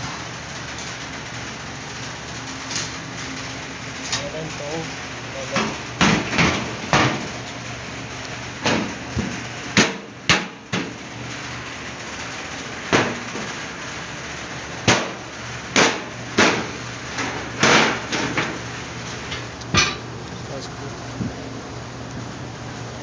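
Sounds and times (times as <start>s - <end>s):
knocks on sheet-metal casing: 5.6s - 7.3s.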